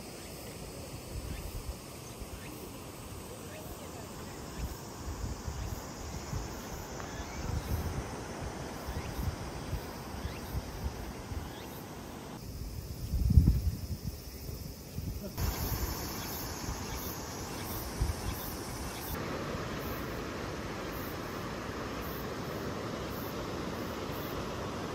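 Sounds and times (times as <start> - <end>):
faint insect buzz: 0.0 - 24.9
wind buffeting microphone: 12.6 - 19.1.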